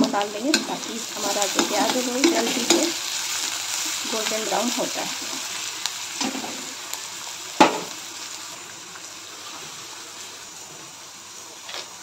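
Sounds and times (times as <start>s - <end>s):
onion sizzling in hot oil: 0.0s - 12.0s
metal spoon clanking on pan: 1.4s - 3.0s.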